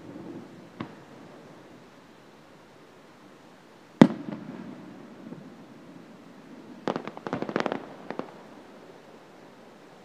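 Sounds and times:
crackling firework pops: 0.1s - 1.1s, 4.0s - 5.4s, 6.8s - 8.4s.

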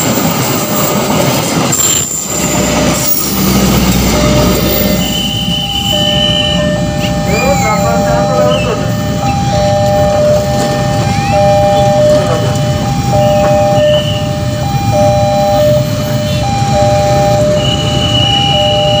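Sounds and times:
level crossing alarm ding-dong: 2.5s - 19.0s
brief high tone: 4.1s - 19.0s.

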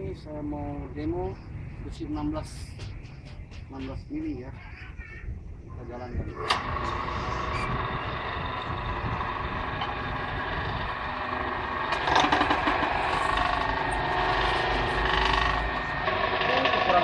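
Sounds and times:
electric motor running: 6.4s - 17.0s
steel bar being cut: 9.6s - 17.0s.

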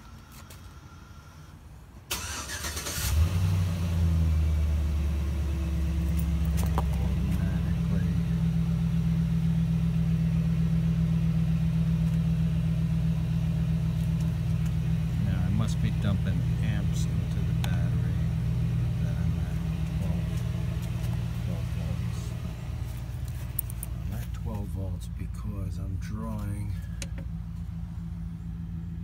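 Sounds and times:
engine starter cranking: 2.1s - 3.3s
truck engine idling: 4.0s - 29.0s.

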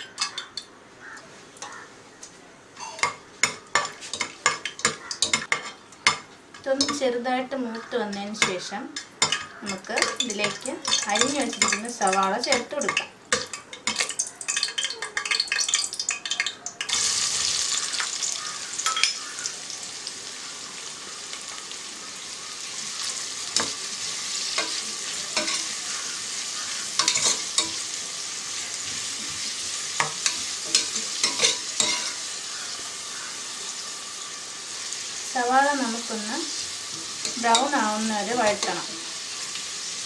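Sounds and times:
onion sizzling in oil: 2.8s - 40.0s
spoon scraping a pot: 24.4s - 27.9s, 30.0s - 32.3s.

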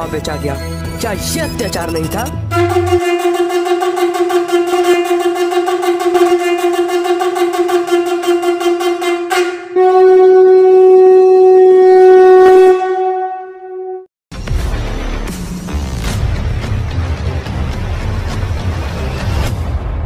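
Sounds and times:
conch shell blasts: 2.5s - 14.1s.

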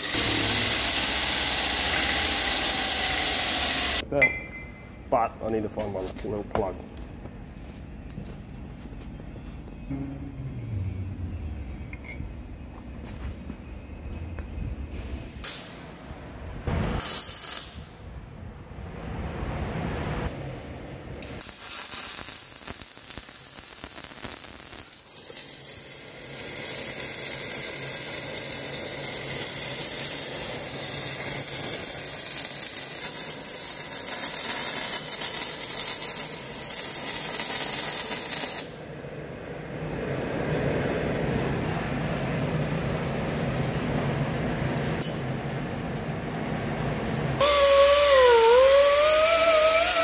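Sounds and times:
welding arc crackling and hissing: 0.0s - 4.0s, 16.8s - 17.8s, 21.2s - 38.8s, 47.4s - 50.0s
low hum: 7.2s - 17.0s.

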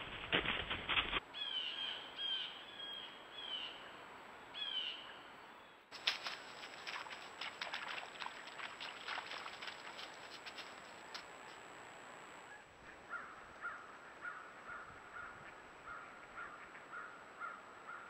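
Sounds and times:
bird calling repeatedly: 1.4s - 3.8s, 4.6s - 5.2s.

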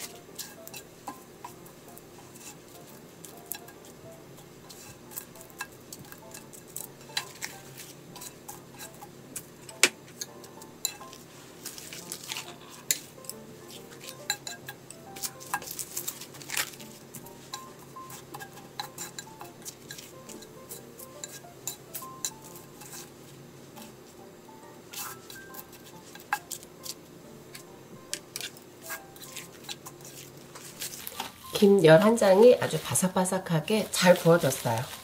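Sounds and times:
utensils tapping on frying pan: 0.0s - 23.1s, 24.9s - 31.7s
soft background music: 0.0s - 35.0s.

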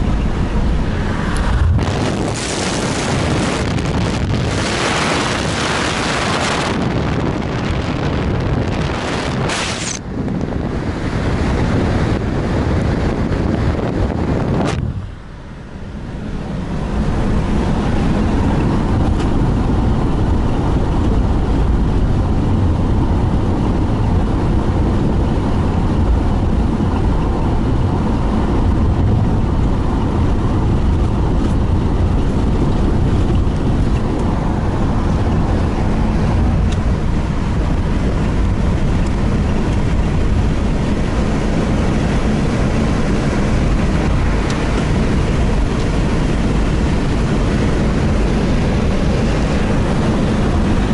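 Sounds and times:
rush of air: 0.0s - 21.4s
car road and engine rumble: 0.0s - 50.9s.

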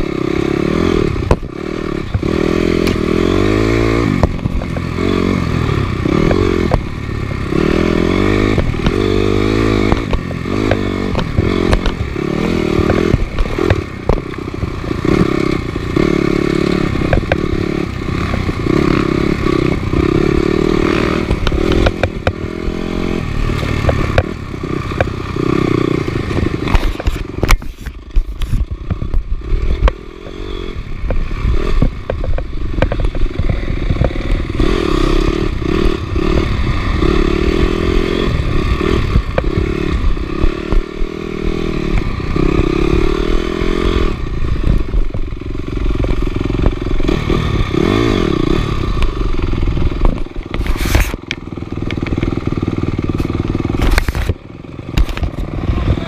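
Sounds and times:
motorcycle engine revving: 0.0s - 56.0s
sharp knocks and rattles: 7.6s - 22.7s, 23.4s - 25.2s, 31.0s - 36.6s.

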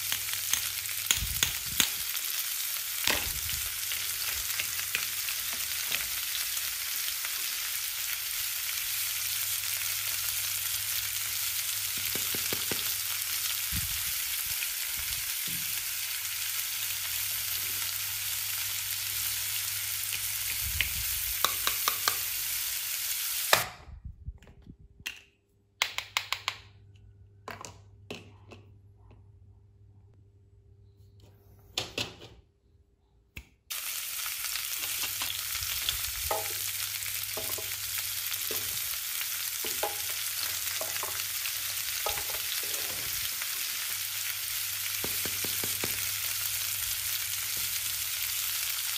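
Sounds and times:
frying sizzle: 0.0s - 23.7s, 33.7s - 48.9s
plastic toys clicking and tapping: 25.8s - 26.8s.

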